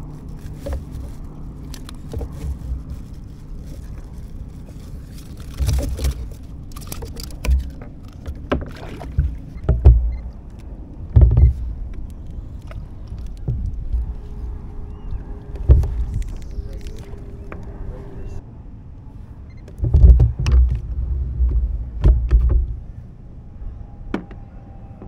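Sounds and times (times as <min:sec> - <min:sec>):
small clicks of fishing gear: 0:00.0 - 0:17.8.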